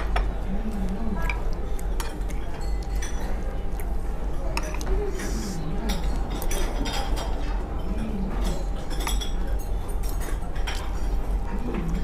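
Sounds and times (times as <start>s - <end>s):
steady low hum: 0.0s - 12.0s
cutlery clinking on a plate: 4.5s - 4.9s.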